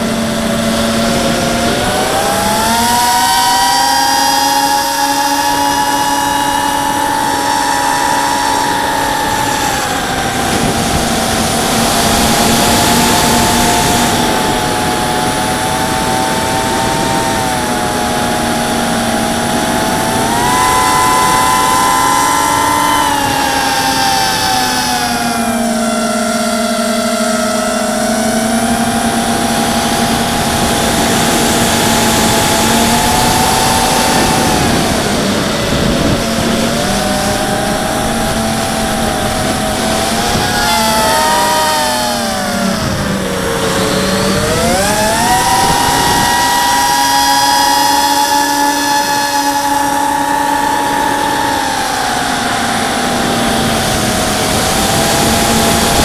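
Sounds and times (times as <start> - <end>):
drone motors whining: 0.0 - 56.0.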